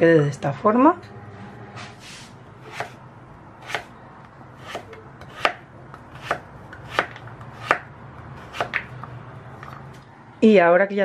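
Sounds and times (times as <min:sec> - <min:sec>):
knife chopping on cutting board: 0:02.7 - 0:03.0, 0:03.6 - 0:03.9, 0:04.6 - 0:09.0.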